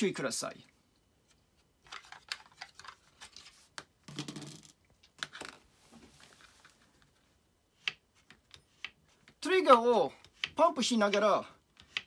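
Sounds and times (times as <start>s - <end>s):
rustling scrape: 5.7s - 7.1s.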